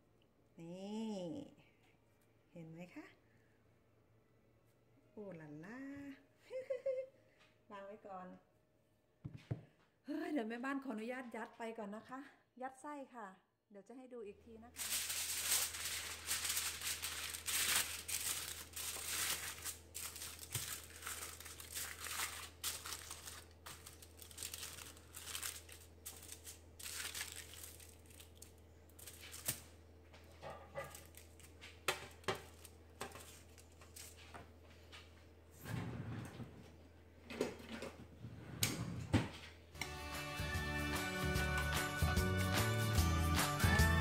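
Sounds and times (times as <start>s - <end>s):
aluminium foil crinkling: 14.8s - 29.7s, 30.8s - 34.3s.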